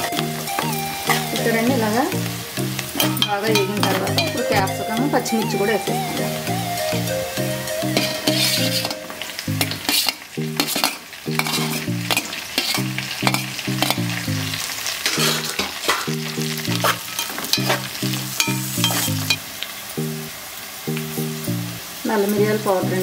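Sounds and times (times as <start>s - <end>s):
background music with low notes: 0.0s - 19.4s, 20.0s - 23.0s
vegetables sizzling in hot oil: 0.0s - 23.0s
metal spatula scraping pot: 8.0s - 9.0s, 9.6s - 14.0s, 15.0s - 19.4s.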